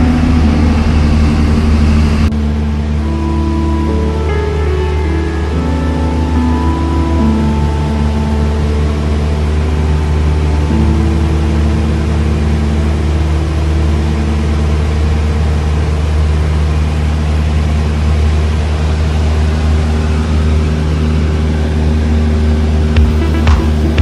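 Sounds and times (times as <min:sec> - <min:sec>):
propeller aircraft engine drone: 0:00.0 - 0:24.0.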